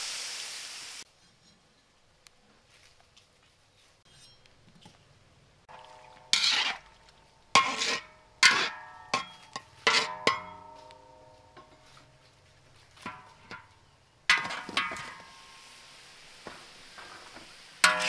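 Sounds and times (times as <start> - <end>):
metal utensil clanking in wok: 5.7 - 12.2, 12.9 - 15.7, 16.4 - 18.0.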